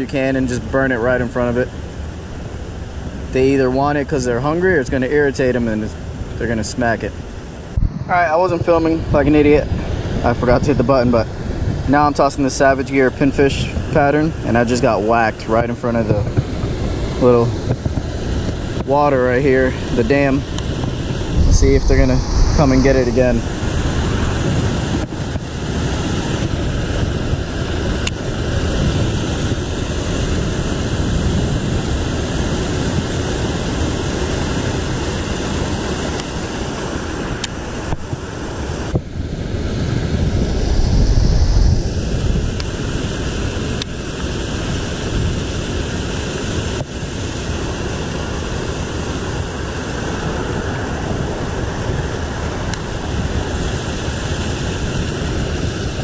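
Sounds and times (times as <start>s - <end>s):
water rushing over spillway: 41.8s - 56.0s.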